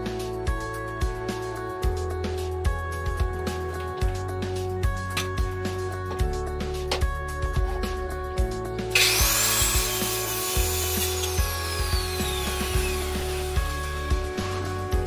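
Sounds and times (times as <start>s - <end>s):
rock instrumental music: 0.0s - 15.0s
circular saw cutting wood: 8.9s - 15.0s.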